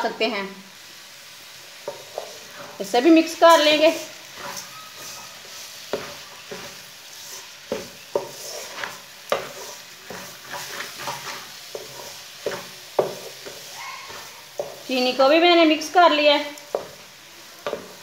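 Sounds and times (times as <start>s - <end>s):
carrots sizzling in oil: 0.0s - 18.0s
wooden spoon scraping metal pot: 1.8s - 15.3s, 16.6s - 18.0s.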